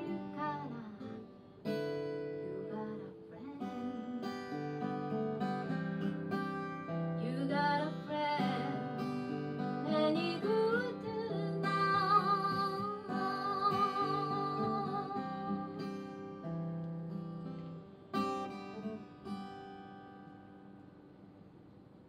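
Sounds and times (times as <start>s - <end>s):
woman singing: 0.0s - 4.5s, 6.9s - 16.3s
strummed acoustic guitar: 0.0s - 21.6s.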